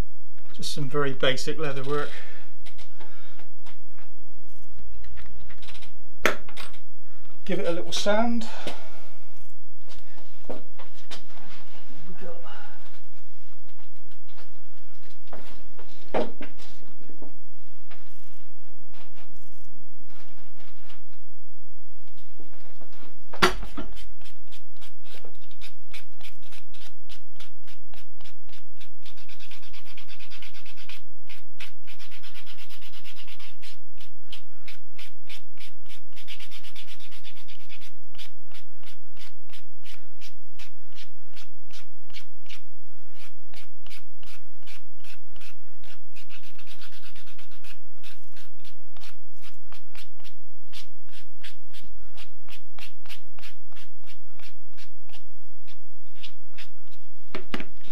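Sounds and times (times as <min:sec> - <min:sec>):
hand-sanding leather: 0:23.6 - 0:57.1.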